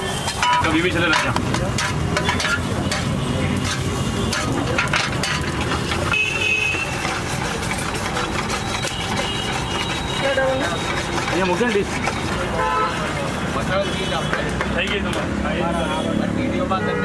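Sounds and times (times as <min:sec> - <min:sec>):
metal spatula scraping a pan: 0:00.0 - 0:13.0
street traffic rumble: 0:00.0 - 0:17.0.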